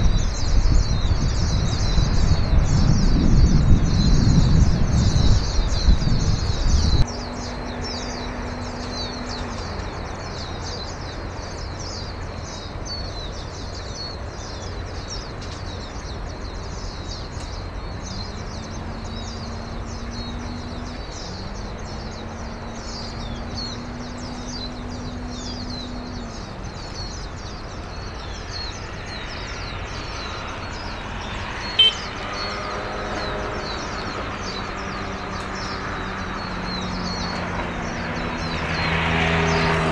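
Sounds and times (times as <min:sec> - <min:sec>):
small birds chirping: 0:00.0 - 0:39.9
ship engine drone: 0:07.0 - 0:15.3.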